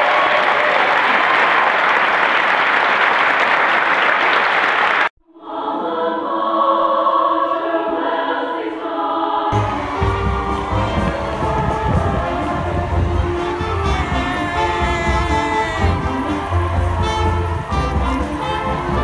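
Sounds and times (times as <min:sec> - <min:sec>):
applause: 0:00.0 - 0:05.1
choir singing: 0:05.3 - 0:19.0
outdoor crowd noise: 0:09.5 - 0:19.0.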